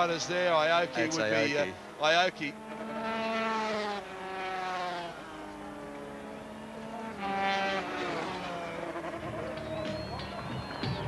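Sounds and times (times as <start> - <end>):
racing motorcycle engines revving: 0.0 - 11.0.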